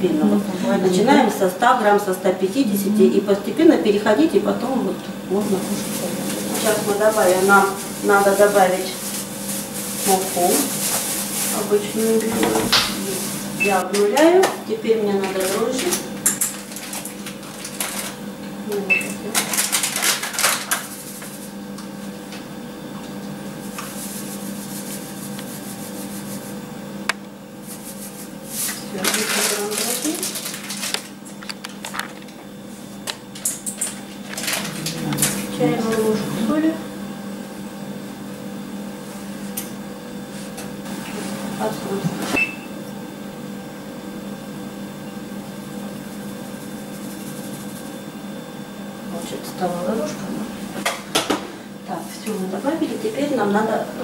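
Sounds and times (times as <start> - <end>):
yeast sachet rustling: 5.4 - 12.2, 19.3 - 21.2, 27.6 - 32.2
steady low hum: 29.6 - 54.0.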